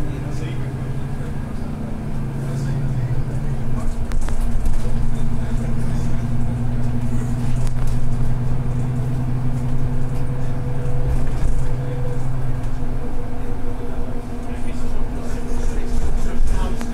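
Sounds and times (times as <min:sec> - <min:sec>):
bus drivetrain hum: 0:00.0 - 0:16.9
road rumble: 0:00.0 - 0:16.9.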